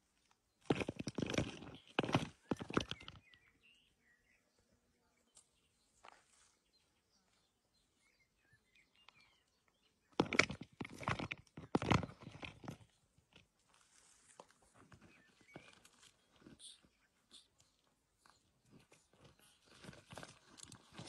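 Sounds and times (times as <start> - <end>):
faint bird chirps: 1.6 - 10.2, 14.9 - 21.0.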